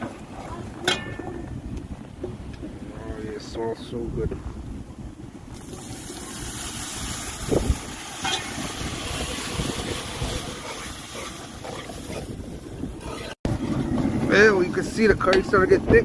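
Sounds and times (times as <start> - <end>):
stew boiling hard: 5.5 - 15.9.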